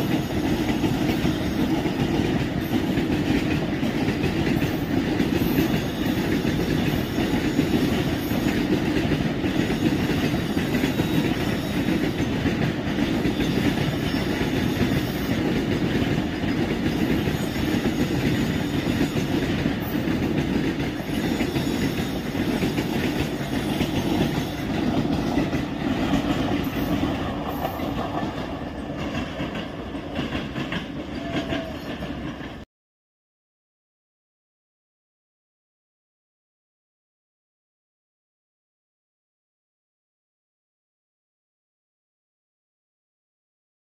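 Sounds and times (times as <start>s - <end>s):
train wheels clattering on rails: 0.0s - 32.6s.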